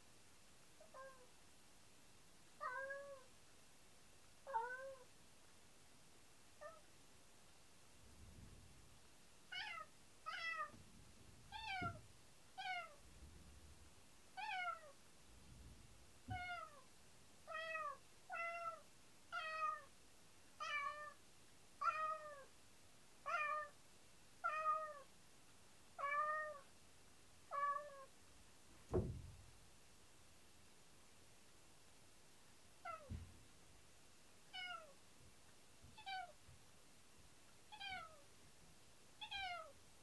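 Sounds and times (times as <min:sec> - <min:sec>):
cat meowing: 0:02.6 - 0:03.3, 0:09.5 - 0:10.8, 0:11.5 - 0:12.0, 0:12.6 - 0:13.0, 0:14.4 - 0:15.0, 0:17.5 - 0:18.8, 0:20.6 - 0:21.2, 0:21.8 - 0:22.5, 0:23.3 - 0:23.8, 0:26.0 - 0:26.7, 0:27.5 - 0:28.1, 0:32.8 - 0:33.2, 0:34.5 - 0:35.0, 0:36.0 - 0:36.4, 0:37.7 - 0:38.2, 0:39.2 - 0:39.7
short thump: 0:28.8 - 0:29.6.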